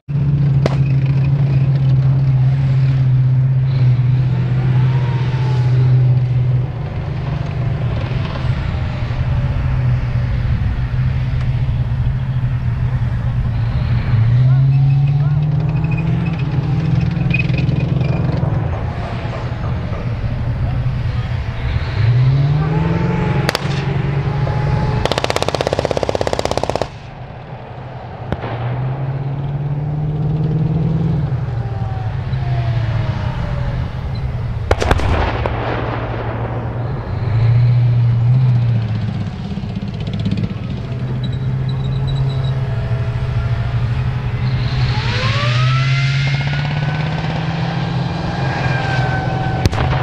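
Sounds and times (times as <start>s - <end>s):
tracked vehicle diesel engines: 0.0s - 50.0s
single sharp cracks: 23.4s - 24.0s
machine-gun fire burst: 25.0s - 27.1s.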